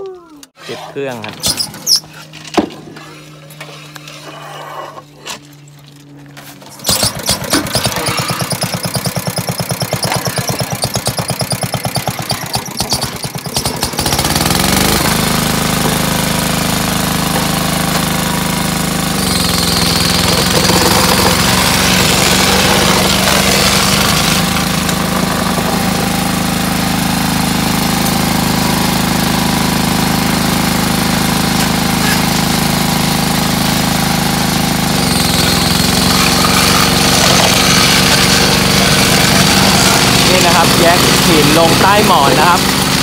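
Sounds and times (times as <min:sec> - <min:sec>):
small petrol engine: 0:05.0 - 0:43.0.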